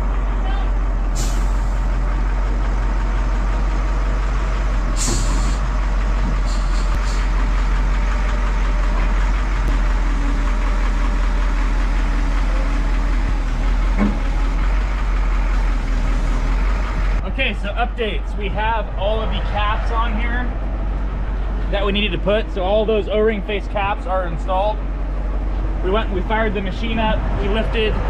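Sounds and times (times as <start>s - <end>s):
diesel engine running: 0.0s - 28.0s
short hisses: 5.0s - 5.6s.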